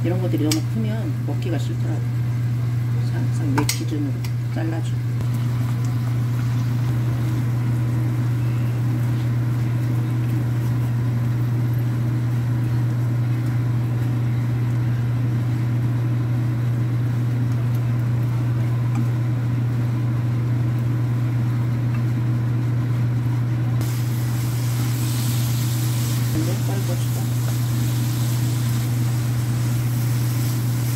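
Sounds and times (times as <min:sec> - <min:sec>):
kitchen fan hum: 0:00.0 - 0:30.9
faint stir-frying in pan: 0:23.8 - 0:30.9.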